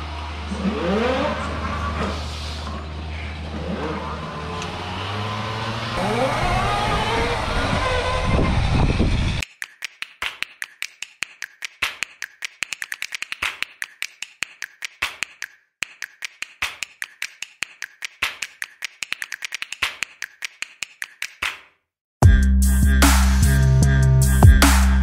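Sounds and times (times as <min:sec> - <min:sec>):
sharp clicks and taps: 0:09.4 - 0:21.7
loud electronic music: 0:22.2 - 0:25.0.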